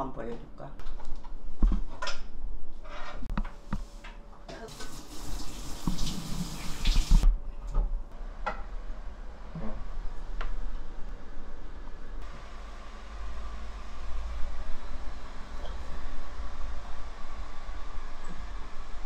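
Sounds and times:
water running: 4.6 - 7.2.

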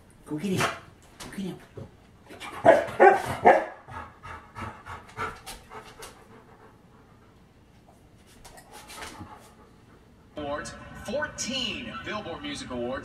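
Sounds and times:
large dog panting: 2.3 - 7.9, 8.6 - 10.4.

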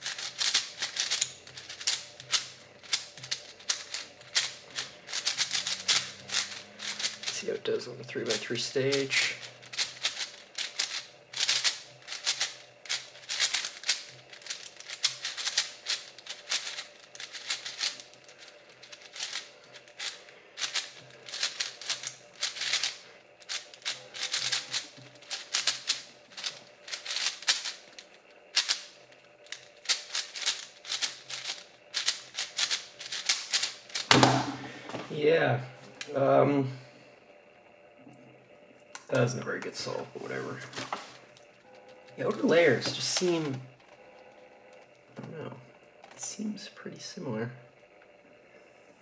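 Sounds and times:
puzzle cube clicking: 0.0 - 7.3, 9.7 - 18.1, 18.8 - 27.8.

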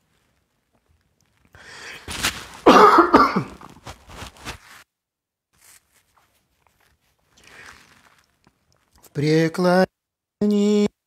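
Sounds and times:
person clearing throat: 2.6 - 3.7
person coughing: 2.6 - 3.7.

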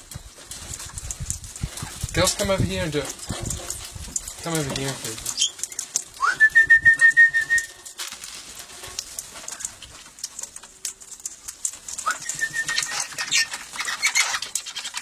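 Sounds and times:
bird chirps: 5.4 - 7.8, 12.0 - 15.0
parrot whistled call: 6.2 - 7.8, 12.0 - 13.5.

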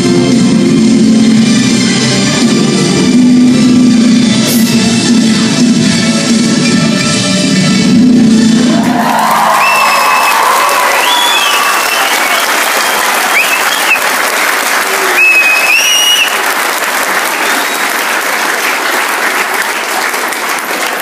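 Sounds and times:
high-pitched cheers: 8.6 - 19.1
audience applauding: 8.6 - 21.0.

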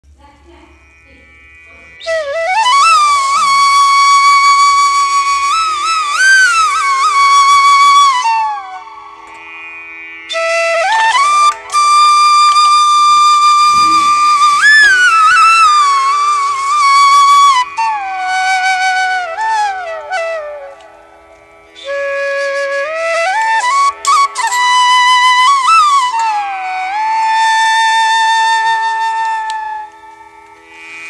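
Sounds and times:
solo flute melody: 2.0 - 9.2, 10.3 - 21.1, 21.8 - 30.2
faint steady drone: 13.2 - 16.6.

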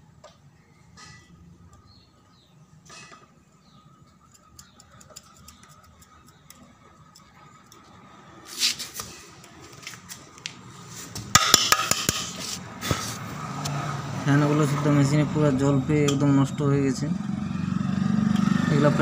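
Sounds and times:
screwdriver scraping metal: 4.3 - 7.8.

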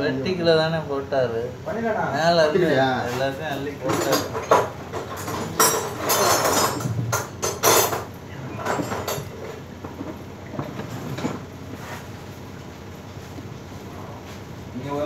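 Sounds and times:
tools scraping on concrete floor: 3.0 - 12.3.

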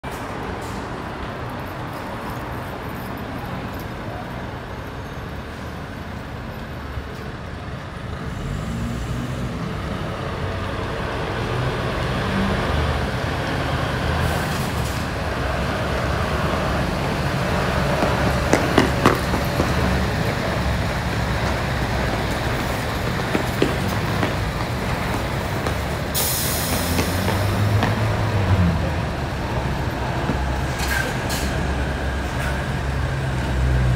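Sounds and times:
road traffic noise: 0.0 - 33.9
truck diesel engine: 6.3 - 33.9.

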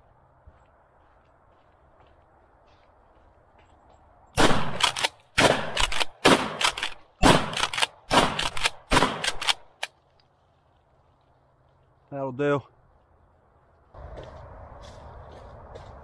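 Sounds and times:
shotgun blasts with echo: 4.4 - 9.6.

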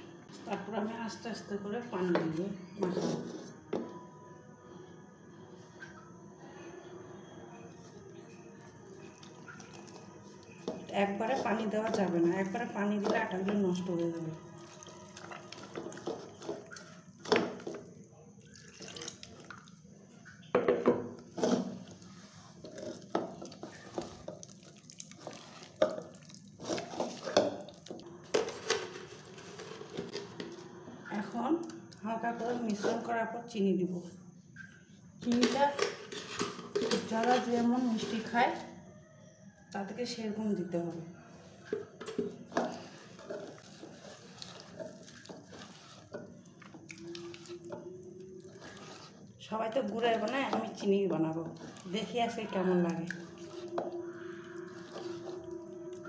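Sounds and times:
hand squelching batter in bowl: 9.0 - 20.5, 21.3 - 28.6, 42.4 - 56.0.

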